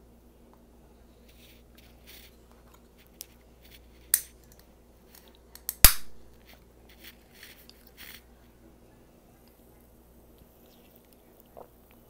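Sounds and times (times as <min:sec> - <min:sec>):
soda can cracking open: 0:05.6 - 0:06.0.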